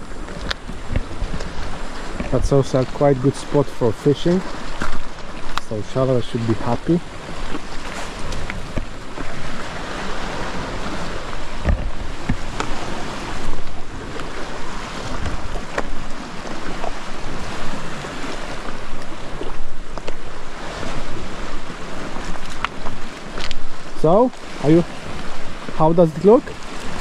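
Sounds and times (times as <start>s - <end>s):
wind buffeting microphone: 0.0s - 3.2s
sea waves surging and splashing: 0.0s - 27.0s.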